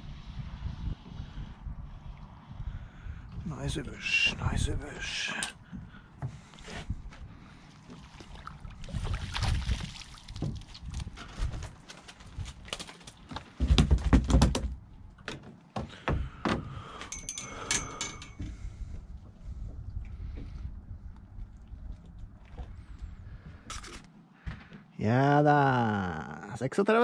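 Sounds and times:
landing net knocks and clatter: 12.0s - 16.6s.

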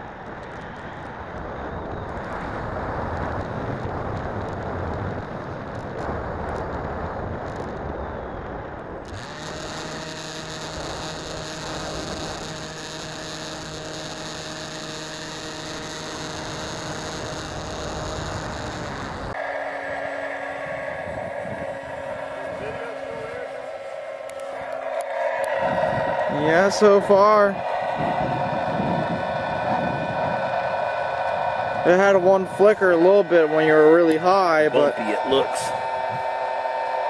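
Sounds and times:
electric motor and propeller whine: 0.0s - 37.0s
air rushing: 17.1s - 37.0s.

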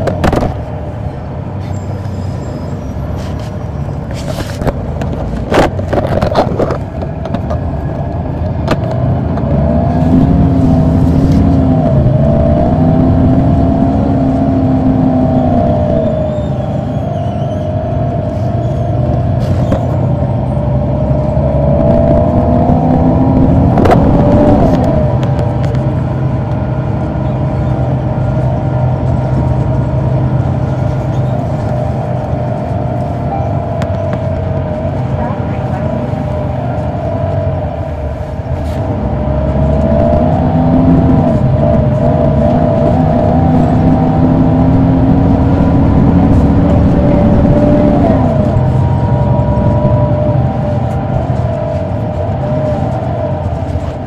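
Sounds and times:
bus diesel engine howling: 0.0s - 54.0s.

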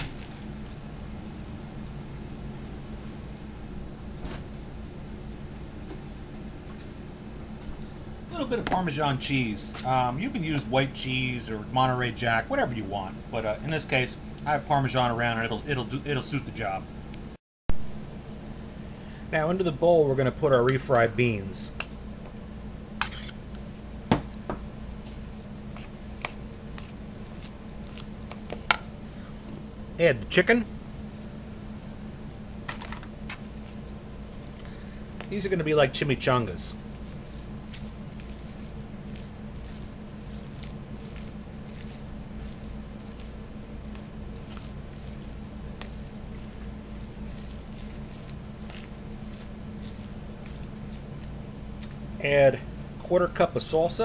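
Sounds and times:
beans squishing in bowl: 0.0s - 0.8s, 23.4s - 52.4s
steady low hum: 0.0s - 54.0s.

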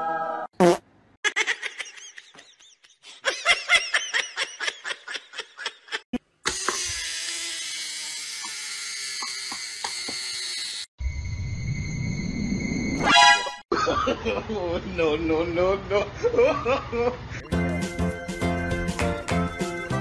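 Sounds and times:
rapid laughter: 1.2s - 6.1s.

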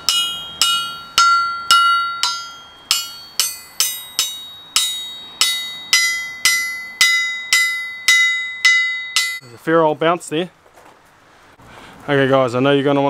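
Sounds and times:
hammer ringing an anvil: 0.0s - 9.5s.

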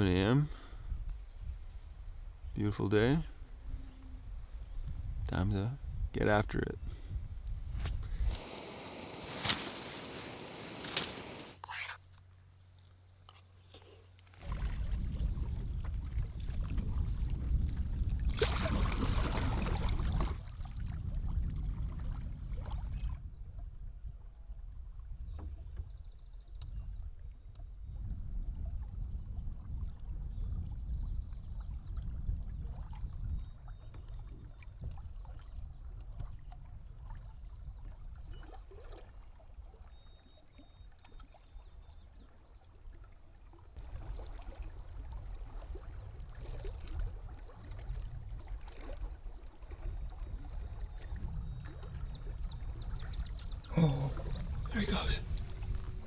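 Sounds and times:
small waves lapping against rock: 14.2s - 23.2s, 32.6s - 56.0s.

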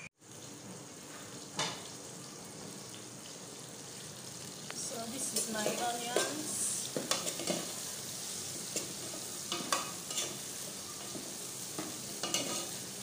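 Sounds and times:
onions sizzling in oil: 0.2s - 13.0s
spoon scraping and knocking a pot: 11.8s - 12.7s.

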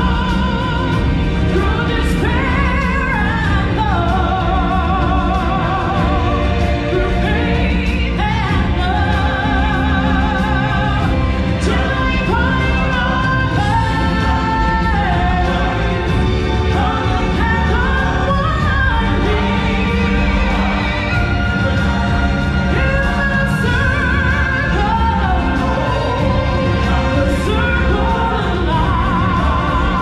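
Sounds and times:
person singing with vibrato: 0.0s - 30.0s
stage show music accompaniment: 0.0s - 30.0s.

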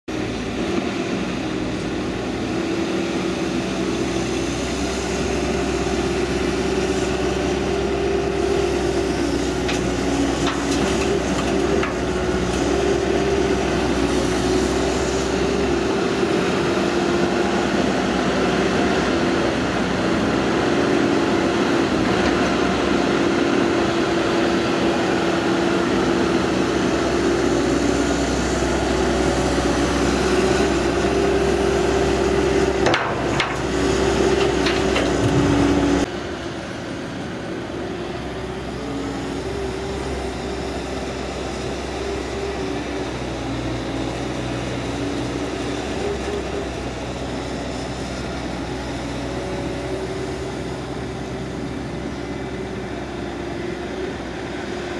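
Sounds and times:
excavator diesel engine running: 0.1s - 54.9s.

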